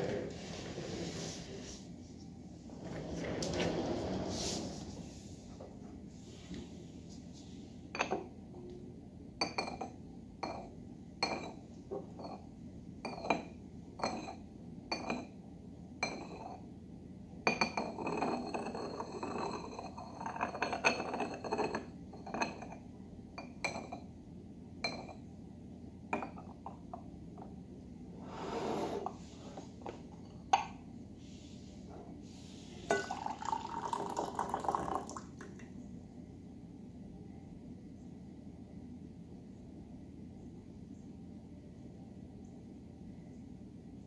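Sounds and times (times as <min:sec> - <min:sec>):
ceramic and glass teaware clinking: 0:09.4 - 0:12.4, 0:13.1 - 0:15.4, 0:16.0 - 0:16.6, 0:17.5 - 0:22.8, 0:23.4 - 0:24.1, 0:24.8 - 0:25.2, 0:32.9 - 0:34.7.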